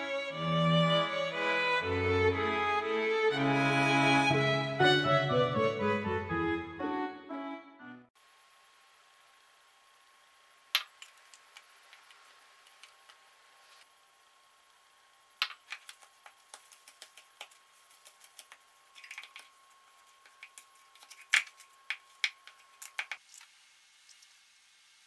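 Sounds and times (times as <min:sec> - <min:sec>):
plastic cup clicking and crinkling: 0:15.4 - 0:19.5, 0:20.2 - 0:23.5.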